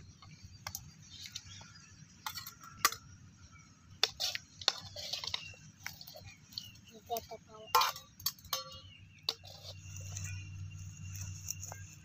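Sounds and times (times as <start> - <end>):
steel utensils clinking on bowls: 4.0 - 11.8.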